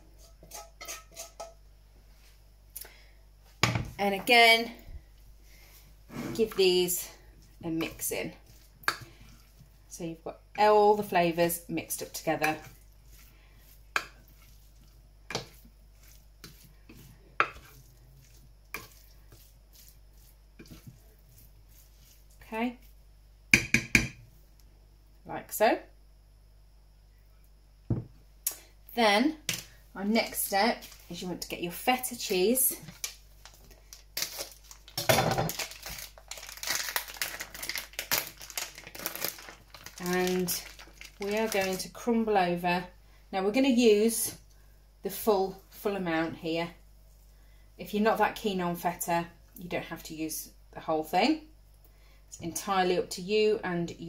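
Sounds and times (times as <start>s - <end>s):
spoon scraping a dish: 0.1s - 1.6s, 12.4s - 22.3s
plastic packaging crinkling: 32.2s - 42.0s.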